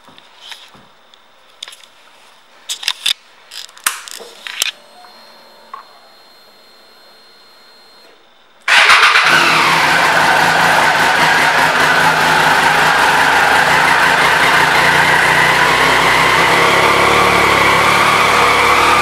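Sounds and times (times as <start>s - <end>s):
faint steady whine: 0.0s - 8.7s
motorcycle engine idling: 8.7s - 19.0s.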